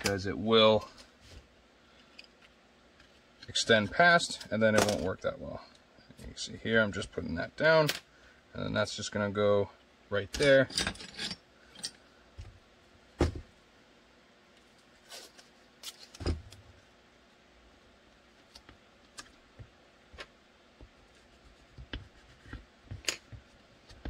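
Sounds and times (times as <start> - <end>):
tape crinkling and handling: 14.5 - 16.6.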